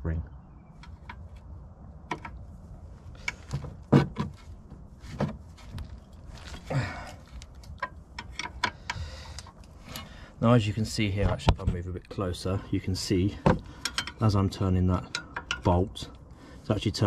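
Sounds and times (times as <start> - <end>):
spanner knocking against metal: 7.8 - 9.0, 13.4 - 15.8.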